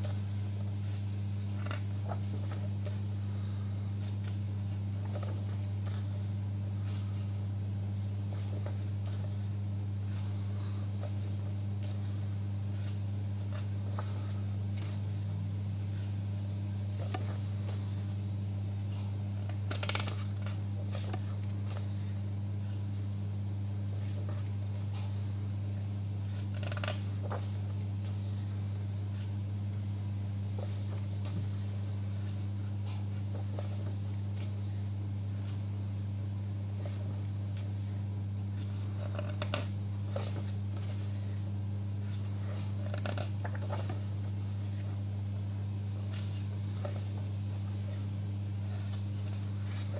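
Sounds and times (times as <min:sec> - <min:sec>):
steady low hum: 0:00.0 - 0:49.9
paper pages turning: 0:01.6 - 0:04.4, 0:05.0 - 0:07.2, 0:08.3 - 0:15.3, 0:18.9 - 0:22.8, 0:26.2 - 0:28.5, 0:30.6 - 0:35.7, 0:38.6 - 0:41.4, 0:42.0 - 0:45.0, 0:46.0 - 0:48.0, 0:48.6 - 0:49.9.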